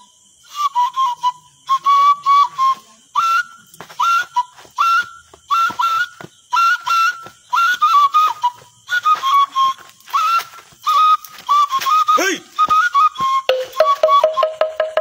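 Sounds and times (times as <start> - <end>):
high whistled tune: 0.0 - 15.0.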